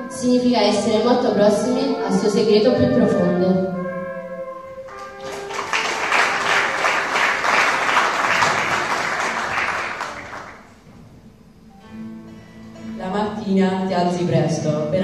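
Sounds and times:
soft instrumental music: 0:00.0 - 0:06.1, 0:11.1 - 0:13.5
audience applauding: 0:04.9 - 0:10.8.

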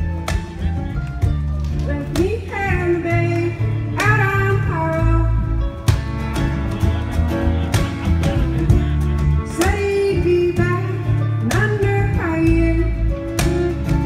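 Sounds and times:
acoustic guitar: 0:00.0 - 0:14.0
mandolin: 0:00.0 - 0:14.0
upright bass: 0:00.0 - 0:14.0
woman singing: 0:01.8 - 0:05.6, 0:09.4 - 0:14.0.

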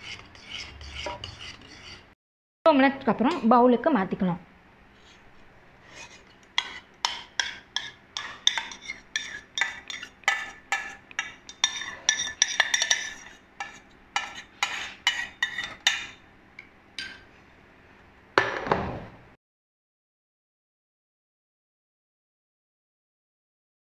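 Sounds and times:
metal spoon scraping a strainer: 0:00.0 - 0:02.1, 0:05.8 - 0:16.2.

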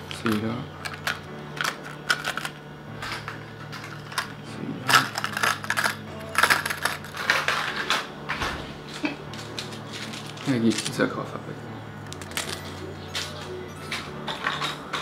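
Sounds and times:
plastic packaging crackling: 0:03.2 - 0:07.8, 0:08.9 - 0:11.1.

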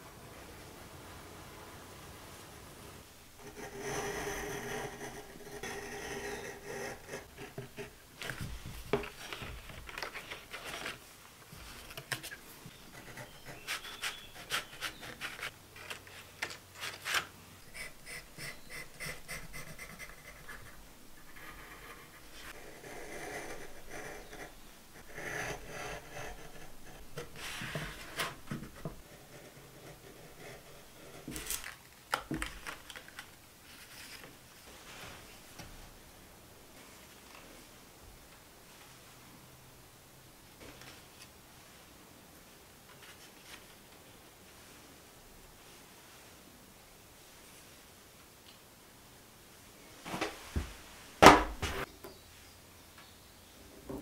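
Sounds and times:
pencil drawing on paper: 0:03.4 - 0:07.9, 0:12.9 - 0:15.5, 0:17.7 - 0:28.2
paper rustling: 0:08.2 - 0:12.5, 0:13.1 - 0:17.4, 0:31.3 - 0:34.4
knife cutting paper: 0:13.2 - 0:16.2.

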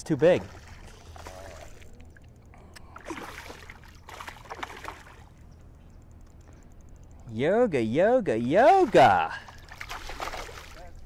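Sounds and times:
fish splashing in water: 0:02.8 - 0:05.3, 0:08.6 - 0:10.8.

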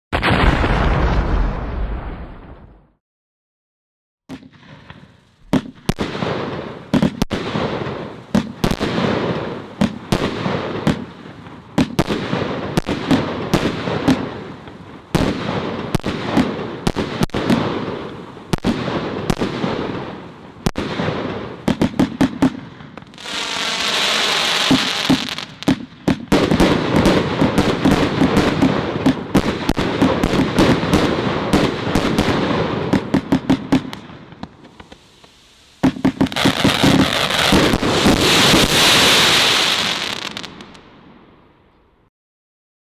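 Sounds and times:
firework shots launching and bursting: 0:00.2 - 0:02.8, 0:04.3 - 0:40.8
firework crackle: 0:04.4 - 0:40.9
firework hiss: 0:23.1 - 0:25.8, 0:34.5 - 0:40.6.

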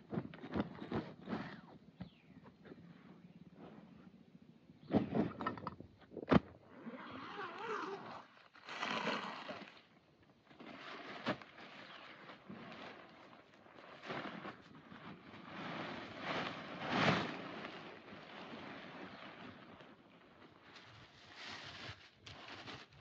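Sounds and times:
fabric rustling and scraping: 0:10.6 - 0:23.0.

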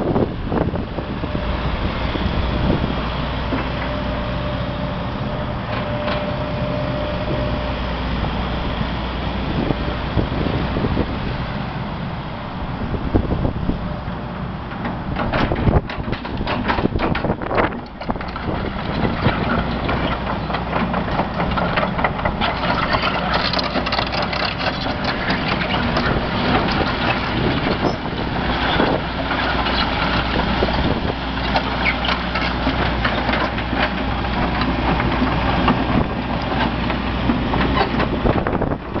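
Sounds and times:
excavator diesel engine running: 0:00.0 - 0:39.0
clanks and knocks: 0:14.8 - 0:27.8.

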